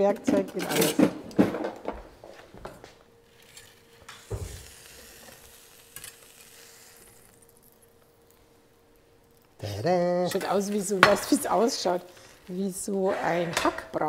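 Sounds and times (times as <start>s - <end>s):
steak sizzling on grill: 3.2s - 13.1s
metal spatulas scraping: 12.9s - 14.0s.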